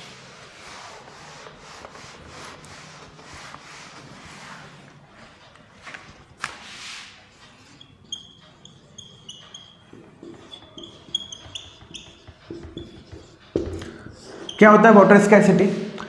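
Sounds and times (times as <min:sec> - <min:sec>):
marker squeaking on whiteboard: 0:05.2 - 0:15.3.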